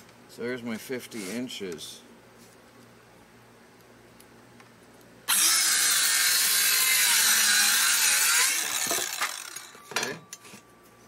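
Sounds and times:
circular saw cutting wood: 5.3s - 9.8s.

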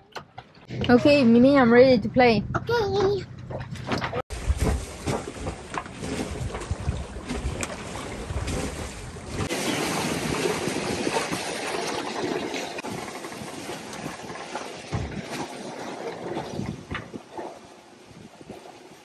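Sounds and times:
wind buffeting microphone: 0.6s - 19.0s
water rushing along hull: 3.8s - 19.0s.

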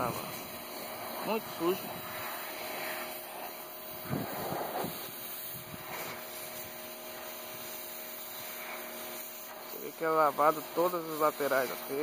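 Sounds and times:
pressure washer motor hum: 0.0s - 12.0s
water jet spraying on roof tiles: 0.0s - 12.0s.

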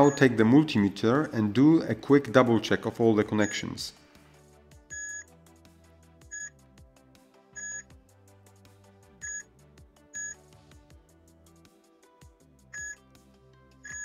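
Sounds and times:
multimeter short beeps: 0.0s - 0.2s, 4.9s - 5.3s, 6.3s - 6.5s, 7.6s - 7.9s, 9.2s - 9.4s, 10.2s - 10.4s, 12.8s - 13.0s.

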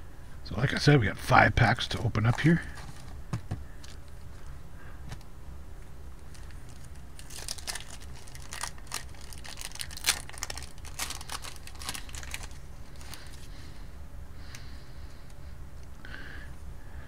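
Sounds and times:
steady low hum: 0.0s - 17.0s
plastic wrapper crinkling: 6.2s - 13.5s.

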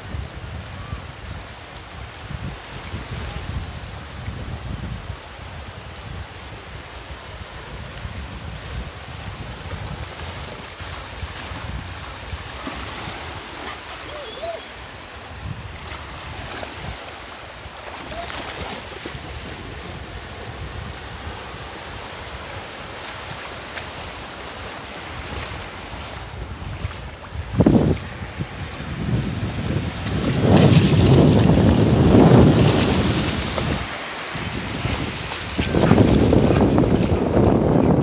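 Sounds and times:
wind buffeting microphone: 0.0s - 17.0s, 17.6s - 38.0s
small waves breaking: 9.7s - 37.8s
dogs splashing through water: 17.8s - 19.6s, 29.9s - 37.4s.

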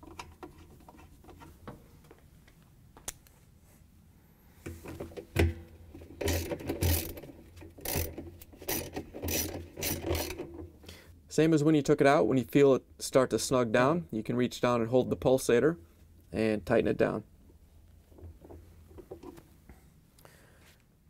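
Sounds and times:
ratchet pawl clicking: 7.8s - 8.1s, 8.7s - 10.4s.

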